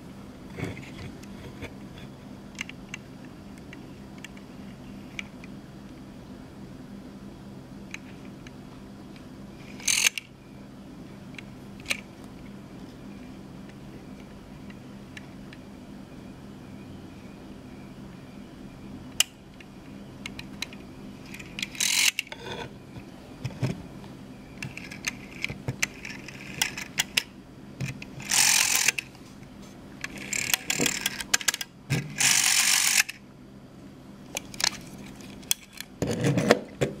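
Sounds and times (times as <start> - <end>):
rotary phone dial whirring: 9.6 - 10.3, 20.3 - 23.7, 24.6 - 29.2, 30.0 - 33.2.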